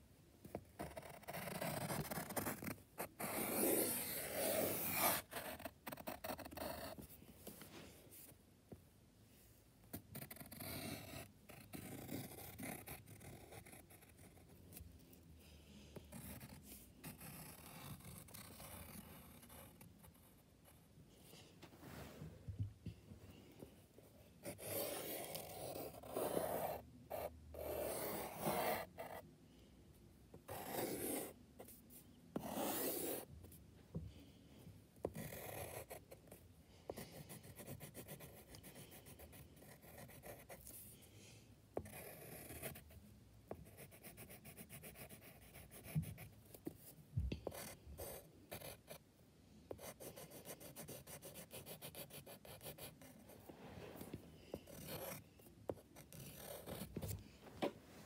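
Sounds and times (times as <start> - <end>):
drawing strokes on paper: 0.8 - 7.0, 24.4 - 29.2, 30.5 - 33.3.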